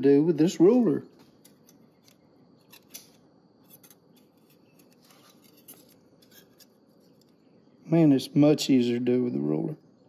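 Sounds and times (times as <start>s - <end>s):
metal clicks and scrapes: 1.4s - 7.4s.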